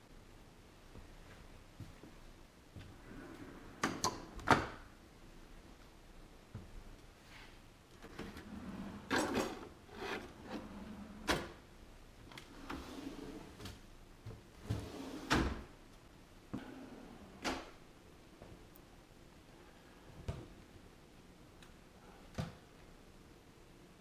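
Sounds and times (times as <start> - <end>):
wooden drawer sliding: 8.0 - 11.6, 12.4 - 13.7.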